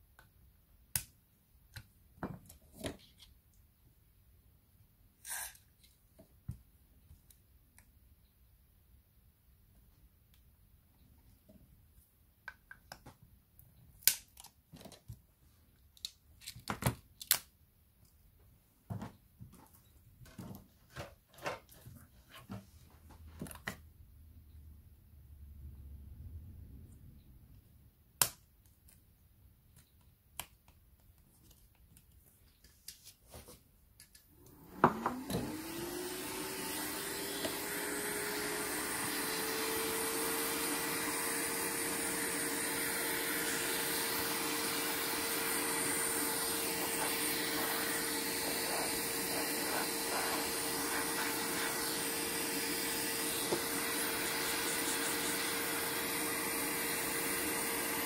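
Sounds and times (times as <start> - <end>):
small electric motor whine: 34.4 - 58.0.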